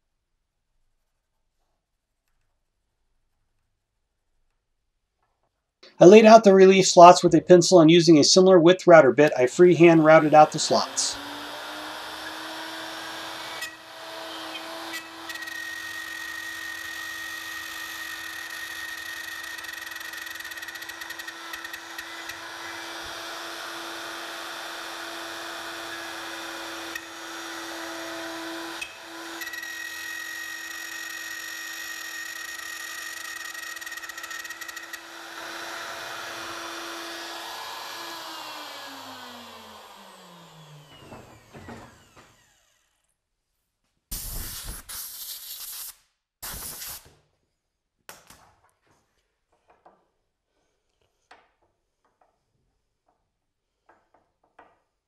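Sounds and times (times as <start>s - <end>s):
router winding down: 9.8s - 43.1s
router running at high speed: 10.0s - 42.8s.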